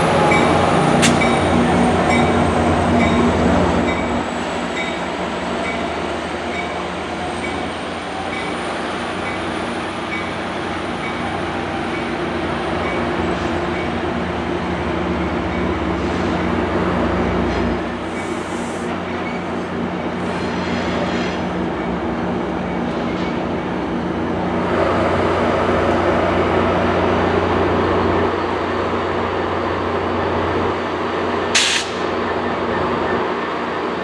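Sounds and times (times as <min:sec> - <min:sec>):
diesel locomotive drone: 0:00.0 - 0:34.0
wheel and rail rumble: 0:00.0 - 0:34.0
short sharp hiss: 0:31.6 - 0:32.0.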